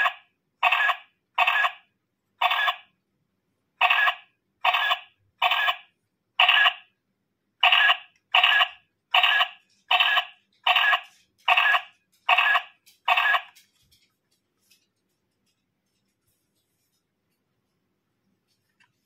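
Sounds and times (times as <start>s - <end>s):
toy camera electronic sound effect: 0.0s - 2.9s, 3.8s - 6.9s, 7.6s - 13.6s.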